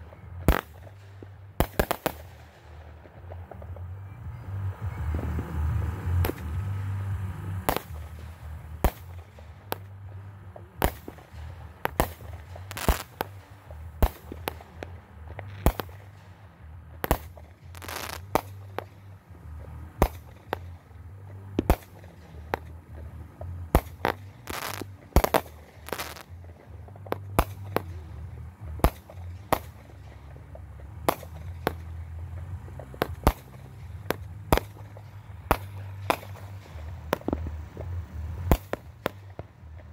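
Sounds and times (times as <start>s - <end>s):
fireworks crackle: 0.0s - 39.9s
fireworks shells bursting: 0.0s - 39.9s.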